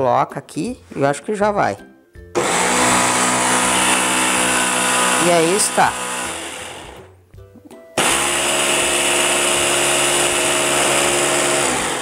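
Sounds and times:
hand blender motor whine: 2.4s - 7.1s, 8.0s - 12.0s.

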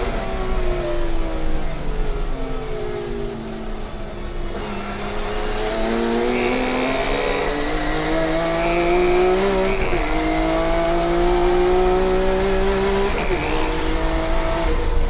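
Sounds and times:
race car engine accelerating: 3.8s - 15.0s.

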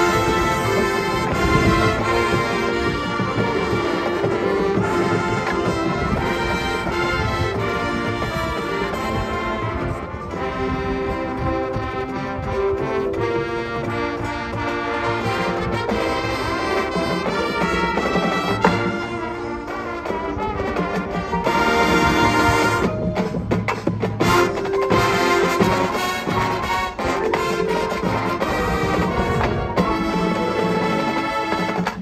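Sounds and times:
marching band playing: 0.0s - 32.0s
sharp percussion hits: 20.2s - 32.0s.

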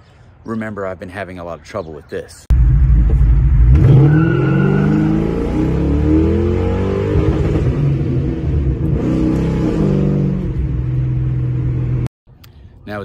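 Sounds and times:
car engine accelerating: 2.5s - 12.1s.

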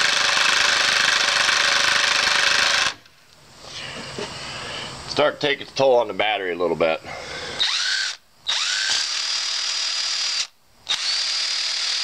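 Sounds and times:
impact driver motor whine: 7.6s - 12.0s.

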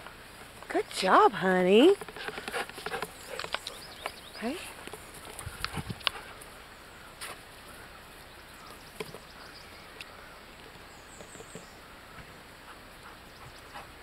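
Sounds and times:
small bird chirping: 2.8s - 4.8s, 8.2s - 11.8s.

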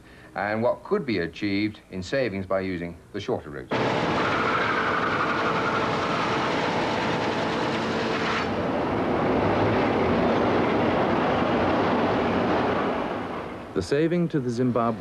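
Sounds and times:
dull machinery rumble: 3.7s - 13.8s
machine whining tones: 3.7s - 13.8s
machinery clatter: 3.7s - 13.8s.

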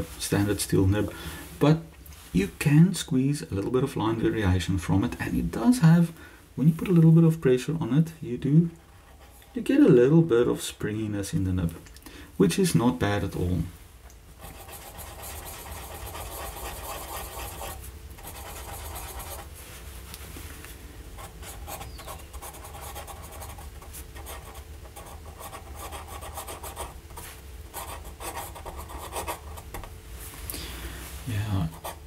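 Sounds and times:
pen nib scratching paper: 14.4s - 19.5s, 21.2s - 27.0s, 27.7s - 29.8s.

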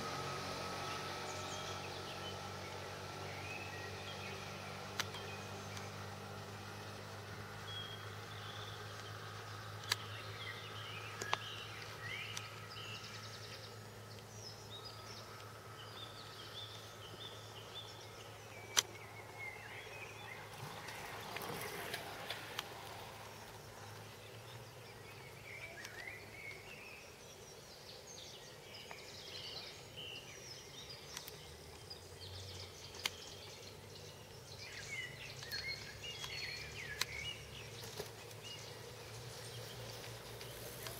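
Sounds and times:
small birds chirping: 0.0s - 40.9s
sharp clicks: 4.9s - 5.9s, 18.7s - 19.0s, 31.0s - 32.0s, 32.9s - 33.4s, 35.3s - 38.4s.

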